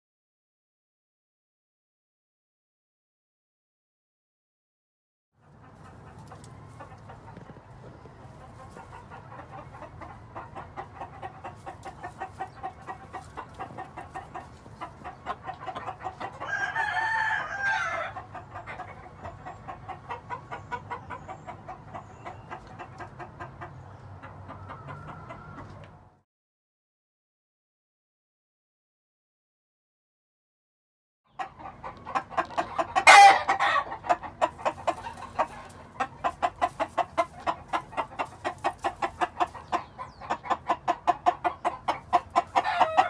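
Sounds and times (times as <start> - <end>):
rooster clucking: 5.4 - 26.2, 31.3 - 43.0
rooster crowing: 16.4 - 18.2, 33.0 - 33.9, 42.6 - 43.0.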